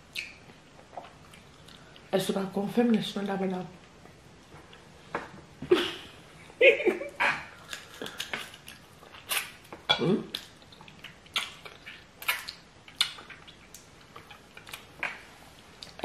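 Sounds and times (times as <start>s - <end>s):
wet chewing and sucking sounds: 7.6s - 16.0s.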